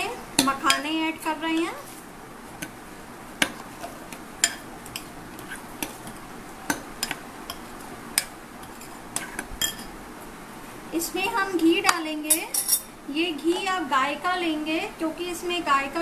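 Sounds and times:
spoon clinking against glass bowl: 9.6s - 9.9s.

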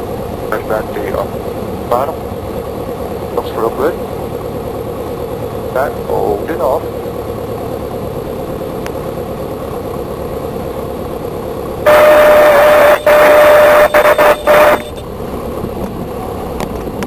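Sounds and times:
airplane engine idling: 0.0s - 17.0s
stall warning horn: 11.8s - 15.1s.

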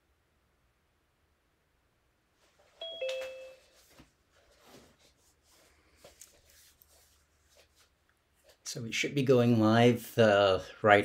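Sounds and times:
rustling and handling noises: 2.4s - 8.7s
two-note doorbell chime: 2.8s - 3.7s.

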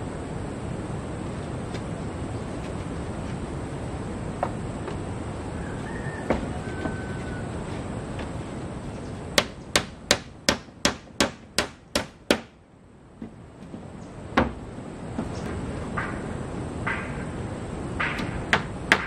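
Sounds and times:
hammer nailing wood: 9.4s - 12.6s, 18.0s - 19.0s.

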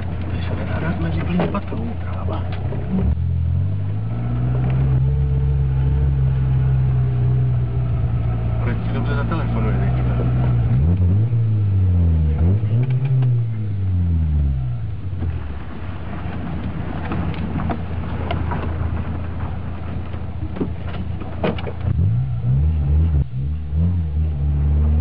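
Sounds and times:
car engine revving: 0.0s - 15.7s, 21.3s - 25.0s.

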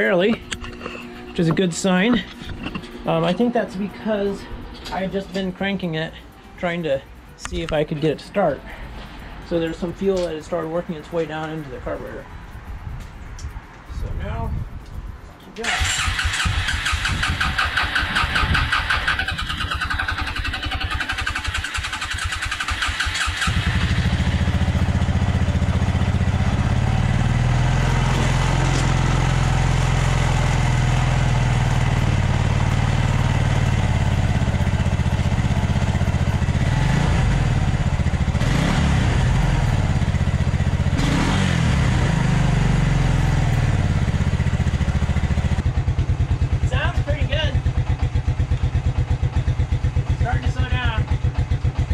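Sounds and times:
electric starter cranking engine: 15.6s - 24.3s
engine running and revving: 15.6s - 46.2s.

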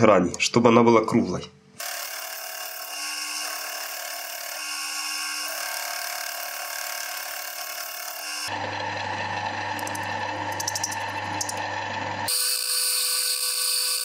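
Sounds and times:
tool cutting brass hiss: 1.8s - 8.5s, 12.3s - 14.0s
metal lathe running: 1.8s - 14.0s.

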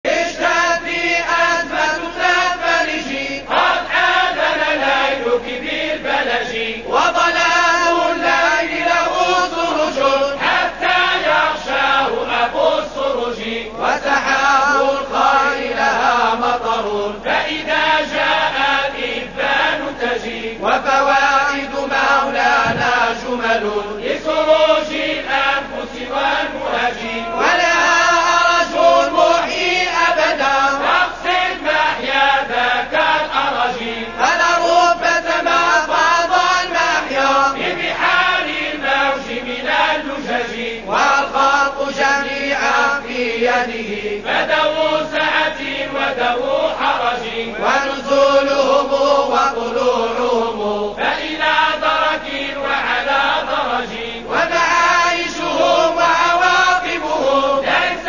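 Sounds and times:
person chanting devotional song: 0.0s - 58.0s.

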